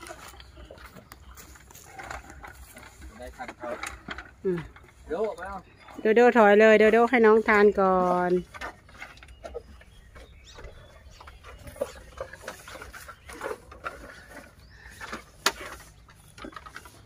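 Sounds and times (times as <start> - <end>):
elephants crunching food: 0.0 - 17.0.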